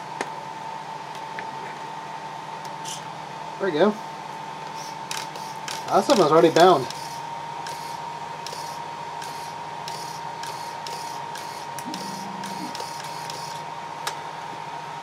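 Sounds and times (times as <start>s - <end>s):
steady high-pitched tone: 11.8s - 13.6s.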